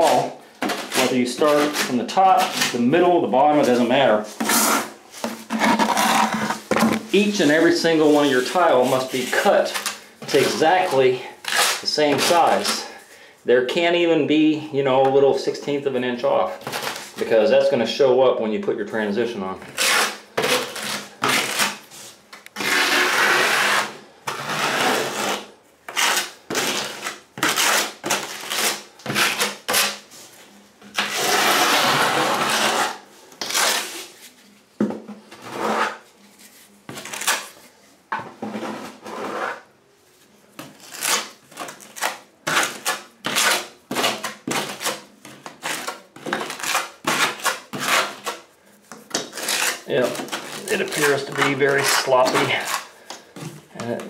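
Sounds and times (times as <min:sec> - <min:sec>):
metal knife scraping mortar: 0:00.0 - 0:12.9, 0:22.6 - 0:30.0, 0:30.9 - 0:34.3, 0:40.6 - 0:52.9.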